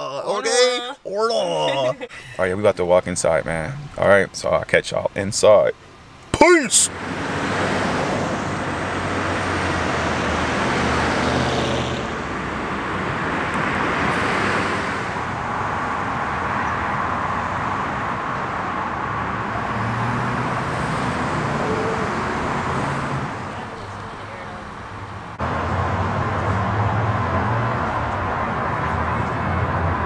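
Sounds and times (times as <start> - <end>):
cars driving past: 6.4 - 30.0.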